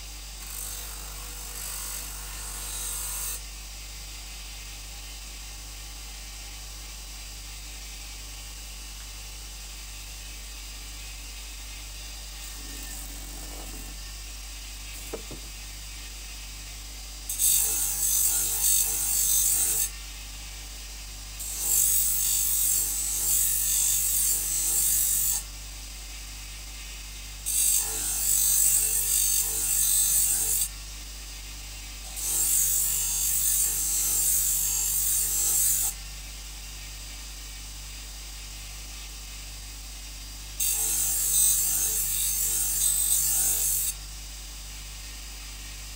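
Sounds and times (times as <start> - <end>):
compound rasping on grinder wheel: 12.4 - 14.1.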